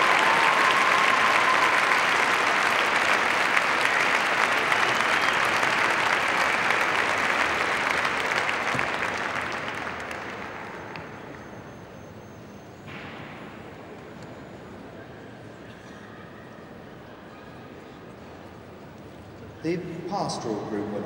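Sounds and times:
crowd applauding: 0.0s - 12.7s.

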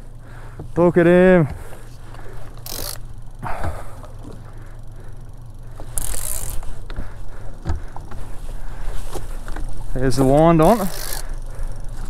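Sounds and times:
outboard engine idling: 0.0s - 12.0s
fishing reel clicking: 2.1s - 3.3s, 5.2s - 7.0s, 9.4s - 12.0s.

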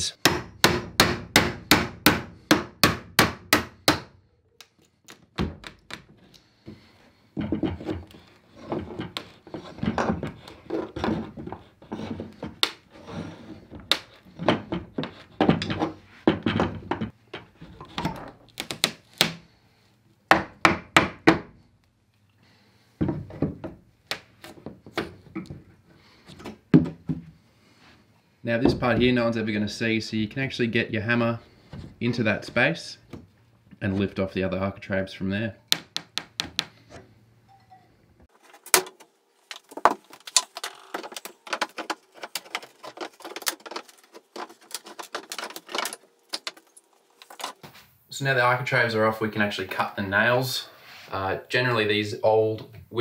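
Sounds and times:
hammer striking chisel in wood: 0.2s - 4.1s, 35.7s - 36.8s.

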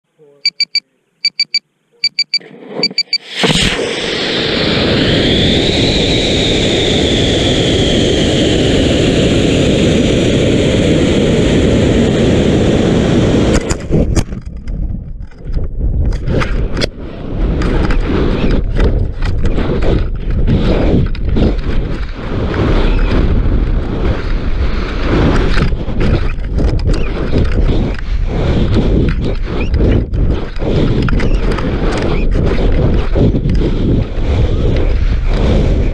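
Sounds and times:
rocket motor roar: 2.5s - 14.3s, 15.8s - 35.9s
gusty wind buffeting: 2.5s - 35.9s.

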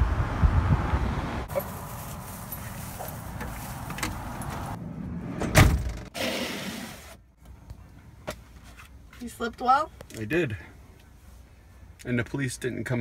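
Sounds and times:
van door shutting thud: 5.4s - 6.1s.

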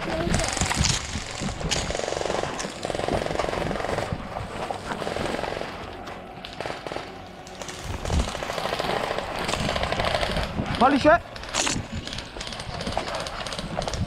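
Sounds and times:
airsoft gun full-auto bursts: 6.5s - 10.5s.

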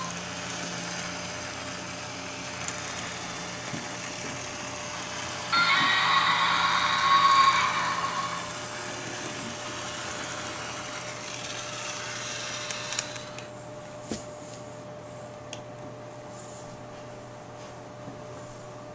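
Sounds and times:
toy mechanical whir: 0.0s - 13.5s.

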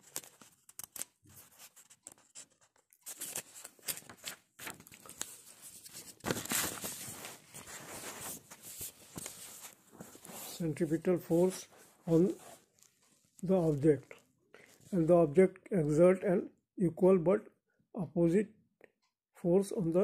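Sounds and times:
handling noise on phone microphone: 5.2s - 14.2s.

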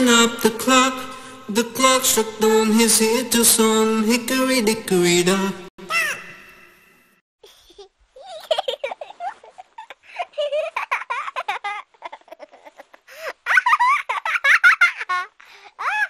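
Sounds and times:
small child giggling: 5.9s - 6.3s, 7.4s - 16.0s.

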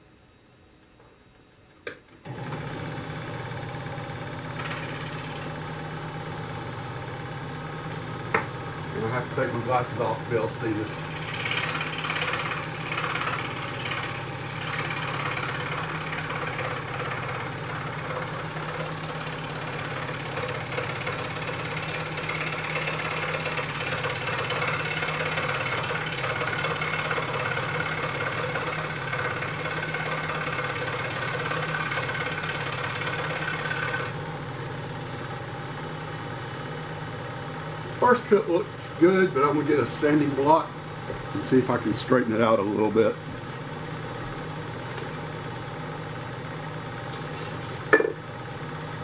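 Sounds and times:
scroll saw motor humming: 4.4s - 6.7s, 8.8s - 34.3s
saw blade cutting wood: 4.6s - 5.5s, 10.0s - 34.2s.

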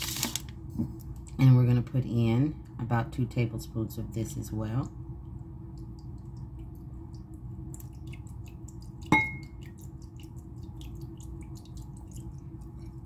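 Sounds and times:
steady low hum: 0.0s - 13.0s
faint drip-like ticks: 4.8s - 13.0s
liquid trickling into bowl: 5.3s - 13.0s
glass clink: 9.1s - 9.5s.

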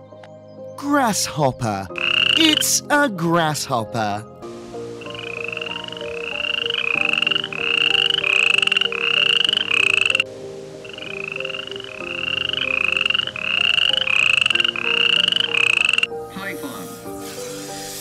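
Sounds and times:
soft background music: 0.0s - 18.0s
animal chirping: 5.0s - 10.2s, 10.8s - 16.1s.

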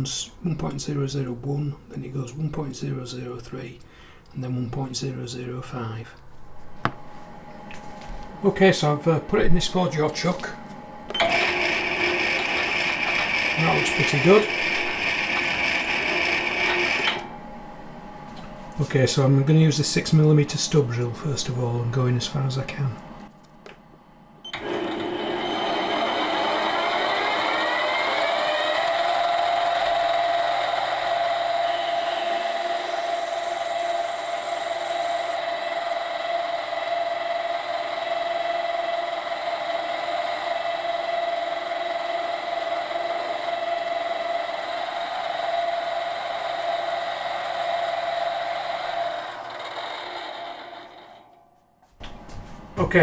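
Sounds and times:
lathe motor whine: 11.0s - 17.7s, 24.5s - 51.4s
drill boring into metal: 11.2s - 17.2s, 24.6s - 51.2s.

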